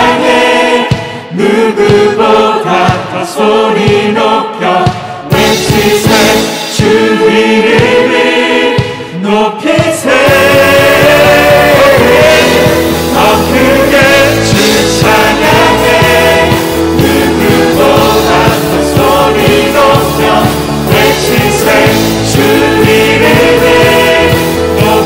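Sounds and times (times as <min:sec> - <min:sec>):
group of singers: 0:00.0 - 0:25.0
worship band playing: 0:00.0 - 0:25.0.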